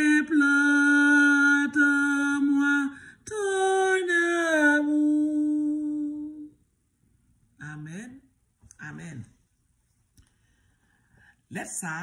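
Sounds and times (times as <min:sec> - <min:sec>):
woman singing unaccompanied: 0:00.0 - 0:06.6.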